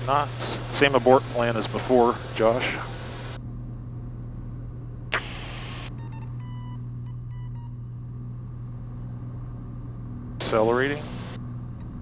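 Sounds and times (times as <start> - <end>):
aircraft engine drone: 0.0 - 12.0
short beeps: 6.0 - 7.8.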